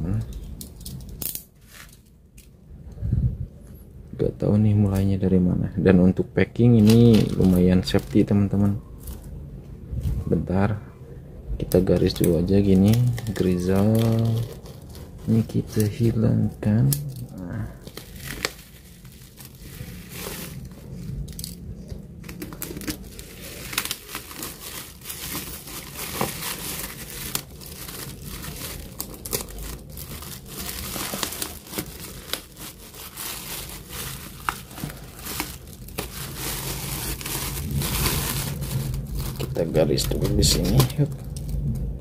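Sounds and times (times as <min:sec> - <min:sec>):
plastic wrapping crinkling: 0:06.6 - 0:09.4, 0:11.8 - 0:41.7.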